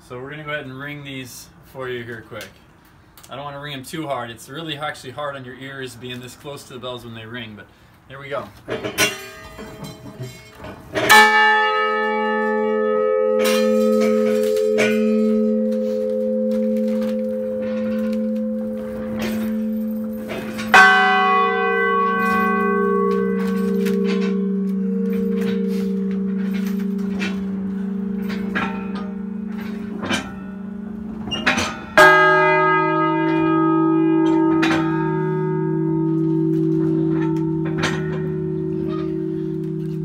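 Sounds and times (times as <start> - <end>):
bell mechanism knocks: 9.0 - 40.0
church bell ringing: 9.0 - 40.0
lower-pitched church bell ringing: 9.0 - 40.0.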